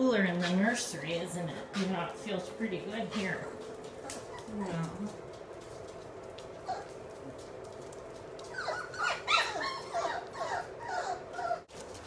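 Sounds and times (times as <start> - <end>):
puppies whining: 3.0 - 5.4, 6.5 - 11.8.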